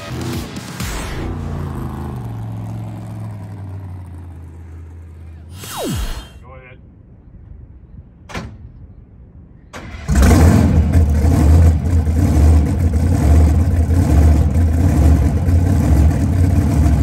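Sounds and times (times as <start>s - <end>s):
truck engine starting and running: 0.0s - 6.1s, 9.6s - 17.0s.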